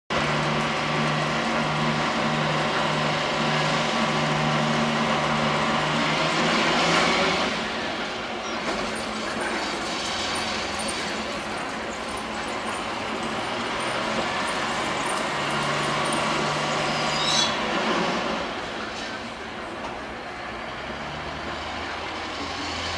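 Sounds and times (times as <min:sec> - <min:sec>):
crane engine running under load: 0:00.1 - 0:22.9.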